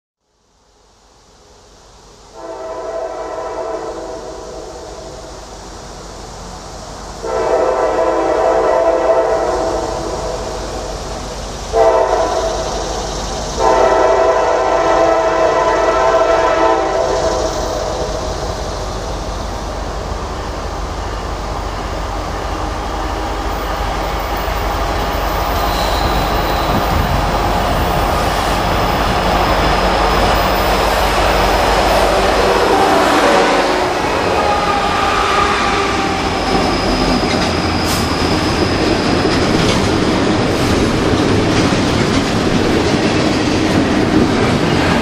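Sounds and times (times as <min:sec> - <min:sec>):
diesel locomotives rumbling: 0:01.8 - 0:45.0
locomotive air horn blasts: 0:02.3 - 0:04.8, 0:07.2 - 0:10.4, 0:11.7 - 0:12.8, 0:13.6 - 0:17.3, 0:29.7 - 0:36.8.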